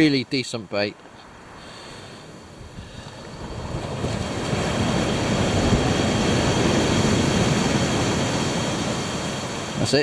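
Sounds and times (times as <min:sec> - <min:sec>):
surf on the beach: 0:00.0 - 0:10.0
wind on microphone: 0:02.4 - 0:10.0.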